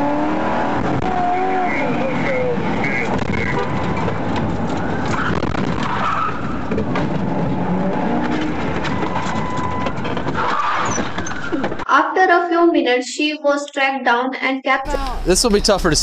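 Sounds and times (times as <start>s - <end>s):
car engine and tyre noise: 0.0s - 11.8s.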